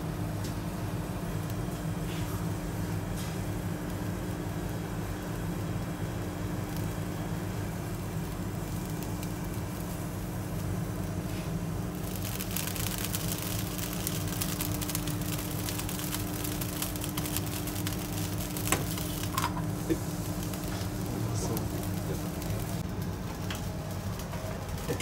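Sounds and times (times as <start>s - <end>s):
food sizzling and bubbling: 0.0s - 25.0s
gas burner flame: 0.0s - 25.0s
low kitchen hum: 0.0s - 25.0s.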